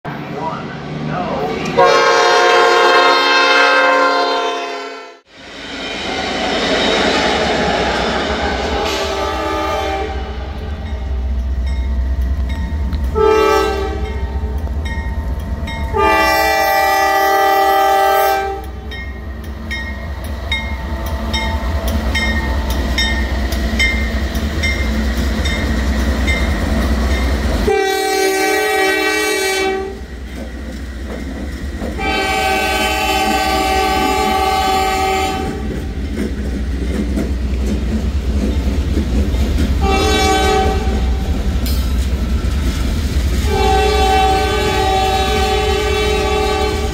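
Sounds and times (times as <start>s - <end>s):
low rumble of passing train: 0.1s - 46.9s
locomotive air horn blasts: 1.8s - 5.3s, 8.8s - 10.4s, 13.2s - 14.2s, 15.9s - 18.8s, 27.6s - 30.0s, 32.0s - 35.6s, 39.8s - 41.1s, 43.5s - 46.9s.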